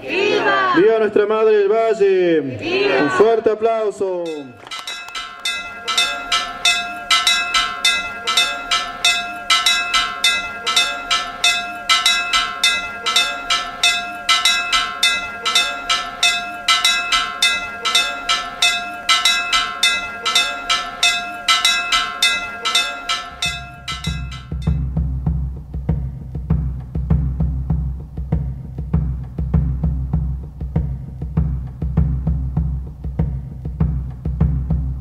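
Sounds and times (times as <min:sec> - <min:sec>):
chapel bells pealing rapidly: 0:04.1 - 0:25.0
drum: 0:04.9 - 0:35.0.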